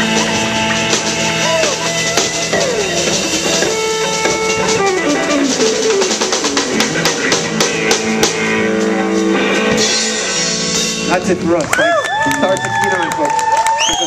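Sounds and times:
guitar sliding downward: 0:00.0 - 0:11.1
drum accents: 0:00.0 - 0:11.7
live rock band playing: 0:00.0 - 0:12.6.

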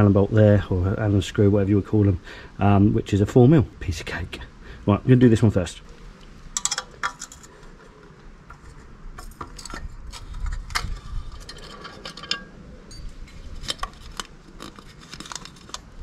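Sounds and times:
plastic cover rubbing: 0:13.3 - 0:16.0.

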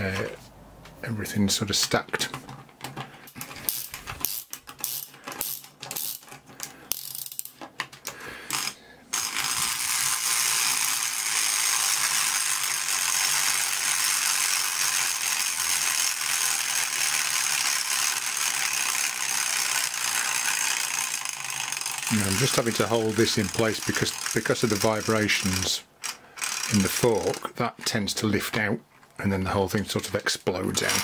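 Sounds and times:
clatter of plastic gears: 0:02.3 - 0:27.5, 0:30.0 - 0:31.0
winding key ratchet clicks: 0:03.7 - 0:07.5, 0:08.5 - 0:27.4.

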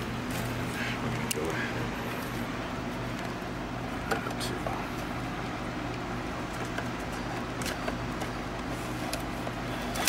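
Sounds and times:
low electrical hum: 0:00.0 - 0:10.0
paper bills clicking and rustling: 0:07.5 - 0:10.0.

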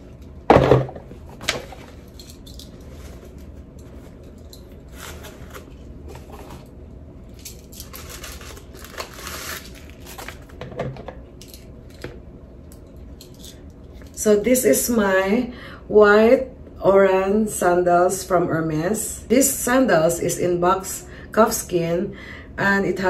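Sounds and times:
soft crinkling: 0:07.5 - 0:10.6.

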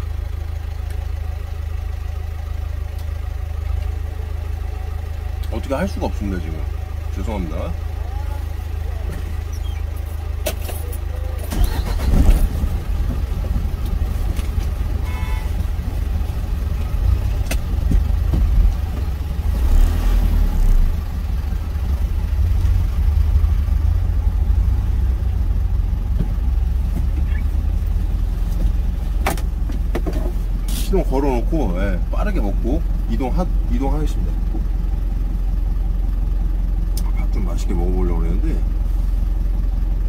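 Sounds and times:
truck engine idling: 0:00.0 - 0:40.0
clicks and knocks in cab: 0:17.4 - 0:19.2, 0:26.1 - 0:27.5, 0:28.6 - 0:30.4.

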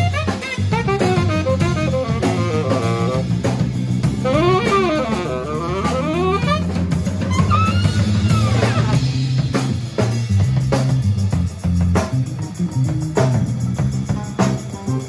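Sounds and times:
saxophone playing: 0:00.0 - 0:09.3
drums: 0:00.0 - 0:15.0
electric bass: 0:00.0 - 0:15.0.

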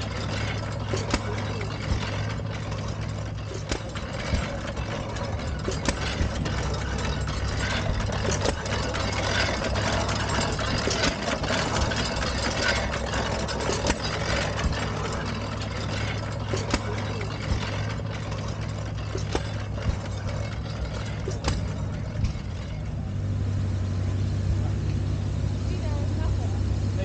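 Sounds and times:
engine pops and knocks: 0:00.0 - 0:26.4
stationary gas engines humming: 0:00.0 - 0:27.0.

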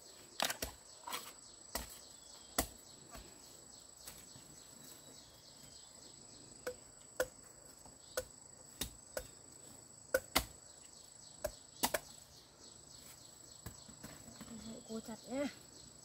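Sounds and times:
blade chopping bamboo: 0:10.1 - 0:10.6.

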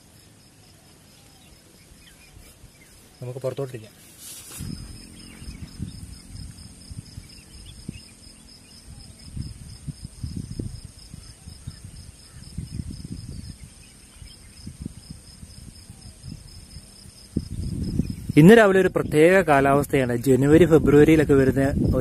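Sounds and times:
crickets chirring: 0:00.0 - 0:22.0
wind buffeting microphone: 0:04.5 - 0:22.0.

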